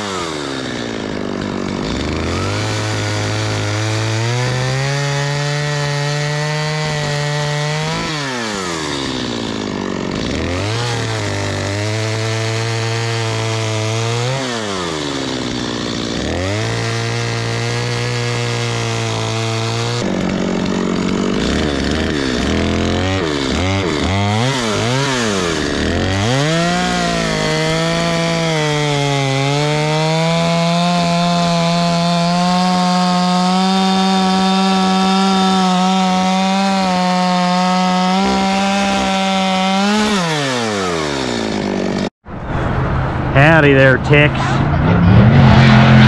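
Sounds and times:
chainsaw cutting through log: 0.0s - 42.2s
chainsaw revving: 0.0s - 42.2s.

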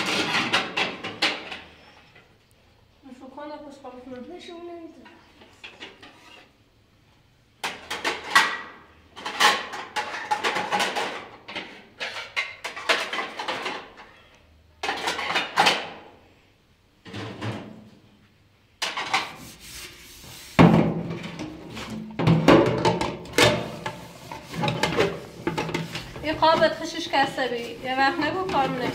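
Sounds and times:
dishes clattering in a wire rack: 7.7s - 14.0s, 20.8s - 26.6s.

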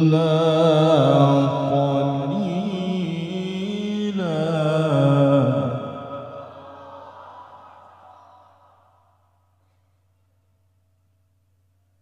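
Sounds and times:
man reciting melodically: 0.0s - 6.6s.

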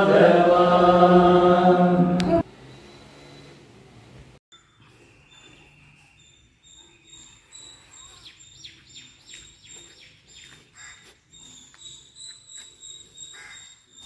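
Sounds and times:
birds chirping: 4.5s - 14.0s.

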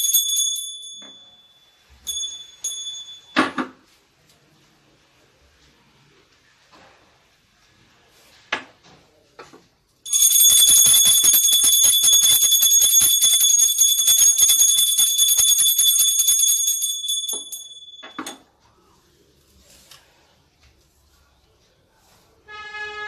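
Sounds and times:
hand bell ringing rapidly: 10.1s - 18.1s.

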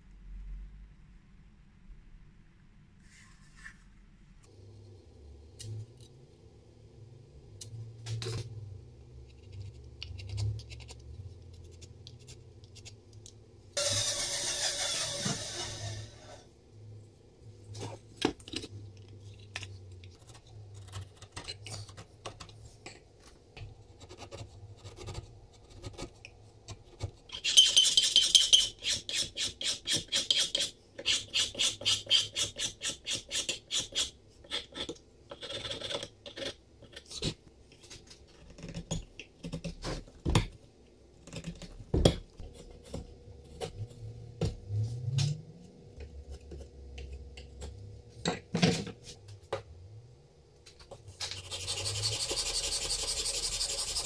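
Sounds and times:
steel file rasping on wood: 13.8s - 16.4s, 27.4s - 34.9s, 51.4s - 54.0s.

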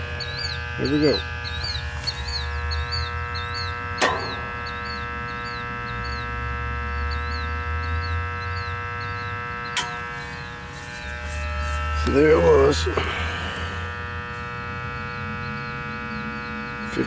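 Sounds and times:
bird chirping: 0.0s - 11.2s, 14.6s - 17.0s
steady electrical buzz: 0.0s - 17.0s.

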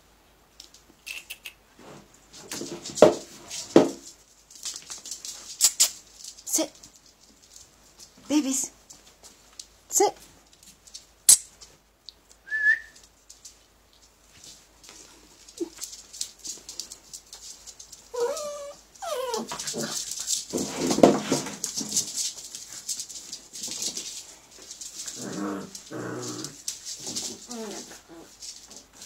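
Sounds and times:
puppies scuffling: 1.7s - 12.0s, 12.9s - 29.0s
puppies whining: 18.1s - 19.6s
puppy growls: 18.1s - 20.2s, 25.0s - 28.4s.

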